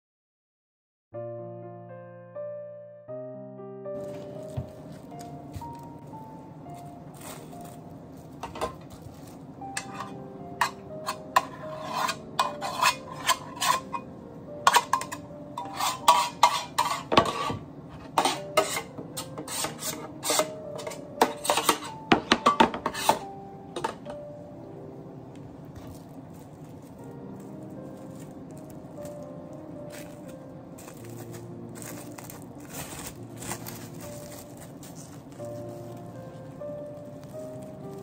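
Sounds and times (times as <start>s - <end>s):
soft background music: 1.2s - 38.0s
knife scraping metal tin: 9.8s - 14.1s, 14.7s - 23.2s.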